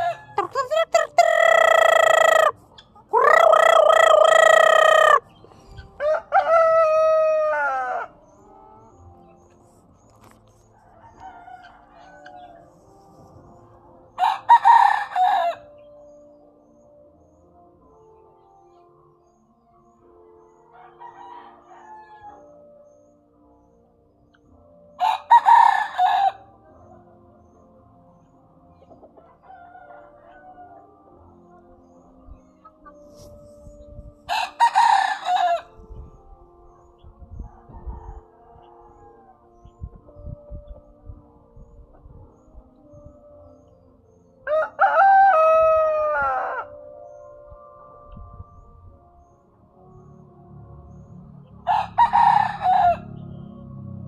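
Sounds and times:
rooster crowing: 0:00.0 - 0:02.6, 0:03.2 - 0:05.2, 0:06.0 - 0:08.2, 0:25.0 - 0:26.4, 0:34.3 - 0:35.7, 0:44.5 - 0:46.8, 0:51.7 - 0:53.2
chickens clucking: 0:00.0 - 0:06.2.

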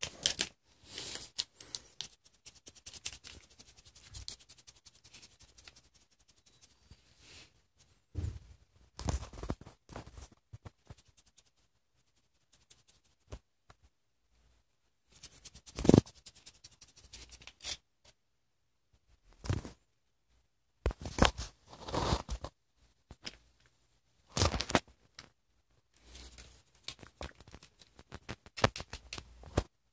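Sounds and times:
plastic sachet crackling: 0:00.0 - 0:02.2.

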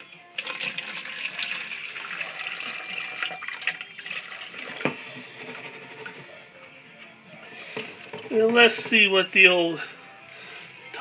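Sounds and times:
faucet running into steel sink: 0:00.4 - 0:04.8.

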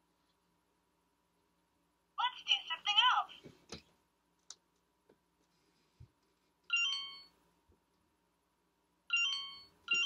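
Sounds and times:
electronic toy chime: 0:06.7 - 0:07.4, 0:09.1 - 0:10.0.

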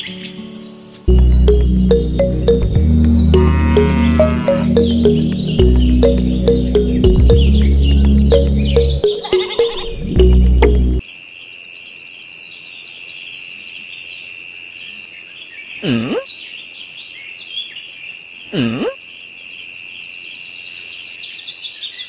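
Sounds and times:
bird chirps: 0:00.0 - 0:11.0
music track: 0:00.2 - 0:11.0
swooping bird calls: 0:03.3 - 0:06.1
high insect buzz: 0:03.4 - 0:04.6.

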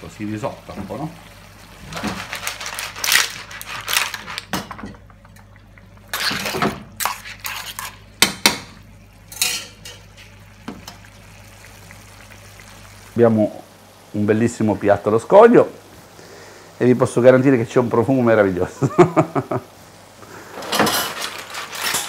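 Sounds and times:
sauce sloshing and sizzling: 0:00.0 - 0:22.0
shells and utensils clattering on pan: 0:01.9 - 0:05.5, 0:09.3 - 0:11.0, 0:20.5 - 0:22.0.

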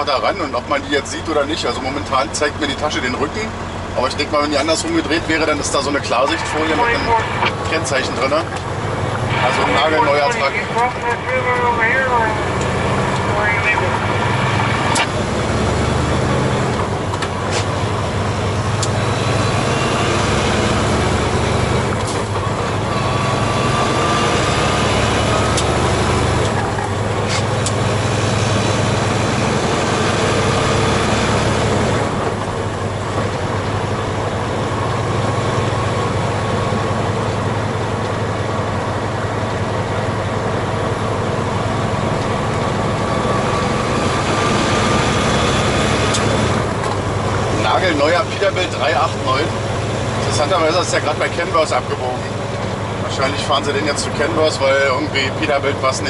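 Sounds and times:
truck diesel engine droning: 0:00.0 - 0:56.0
tyre and road noise: 0:00.0 - 0:56.0
faint whine: 0:01.8 - 0:15.5.

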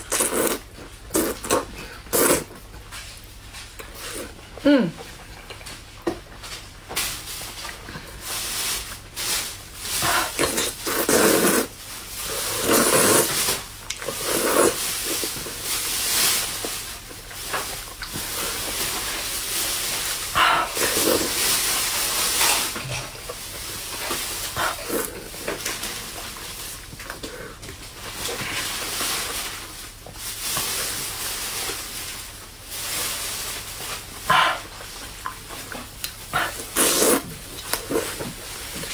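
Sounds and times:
wet slurping and chewing: 0:00.0 - 0:02.6, 0:09.9 - 0:15.7, 0:20.4 - 0:25.9, 0:34.3 - 0:38.9.

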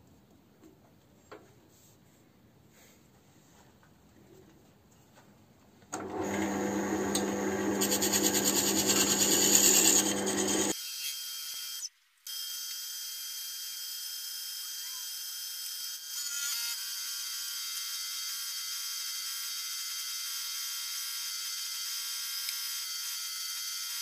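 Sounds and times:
lathe motor hum: 0:06.0 - 0:10.7
turning tool scraping wood: 0:06.1 - 0:10.8.

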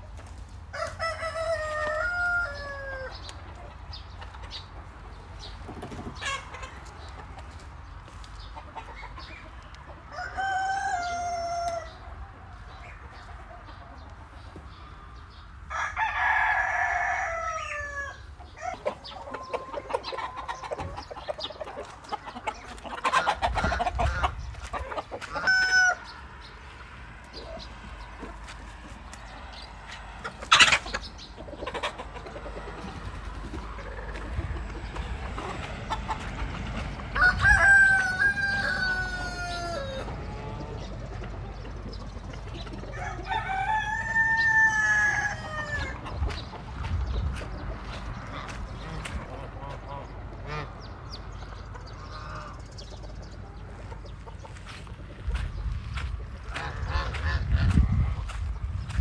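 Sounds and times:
rooster crowing: 0:00.7 - 0:03.2, 0:10.1 - 0:12.0, 0:15.7 - 0:18.9, 0:25.2 - 0:26.3, 0:37.2 - 0:40.8, 0:42.9 - 0:46.0.

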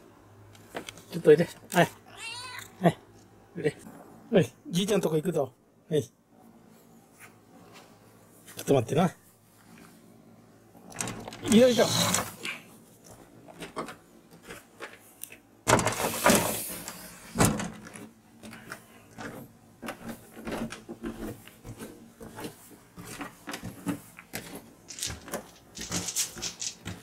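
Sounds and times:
rustling handling noise: 0:10.8 - 0:27.0
scrape: 0:15.9 - 0:17.3
footsteps on wooden stairs: 0:19.2 - 0:27.0
stairs creaking: 0:19.2 - 0:27.0.

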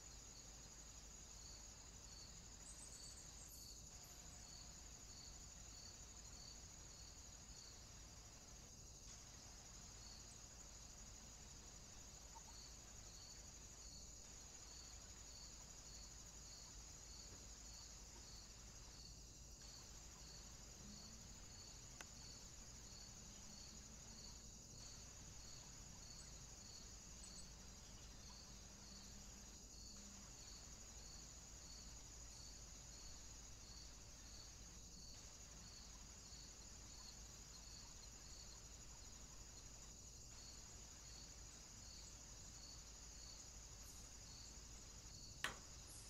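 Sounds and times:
faint crickets chirping: 0:00.0 - 0:46.0
faint click: 0:22.0 - 0:22.2, 0:45.4 - 0:45.7.

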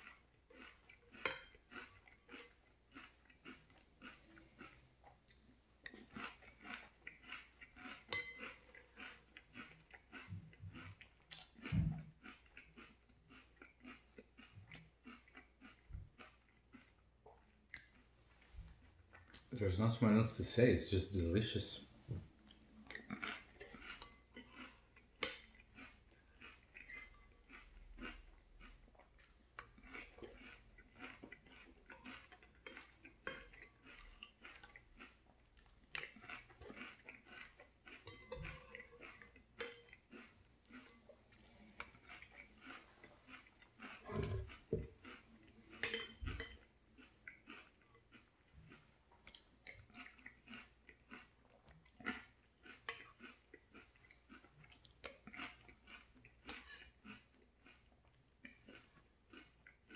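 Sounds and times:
chewing and crunching cereal: 0:00.0 - 0:59.9
metal spoon clinking in bowl: 0:08.1 - 0:08.5, 0:45.8 - 0:46.5.

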